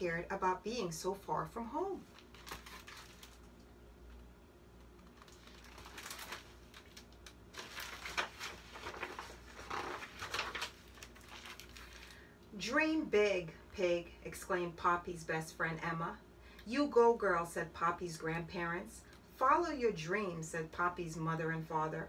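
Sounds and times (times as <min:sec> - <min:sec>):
book pages turning: 0:02.1 - 0:03.6, 0:04.8 - 0:12.2.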